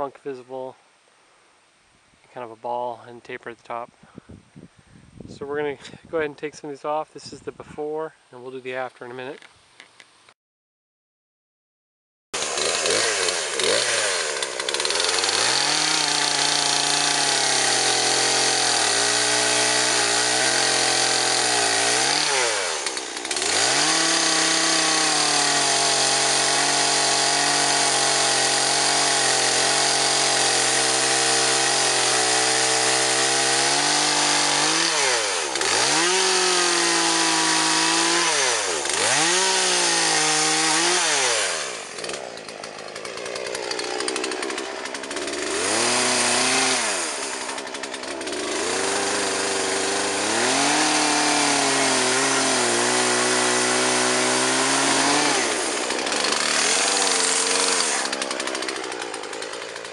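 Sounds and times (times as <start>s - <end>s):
chainsaw cutting at full throttle: 12.4s - 59.9s.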